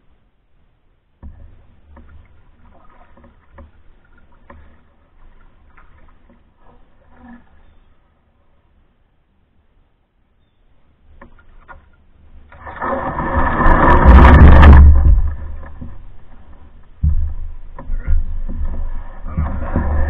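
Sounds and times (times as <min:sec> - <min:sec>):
canoe bump: 0:01.2 - 0:07.6, 0:11.1 - 0:20.0
canoe hull scraping on gravel: 0:11.3 - 0:20.0.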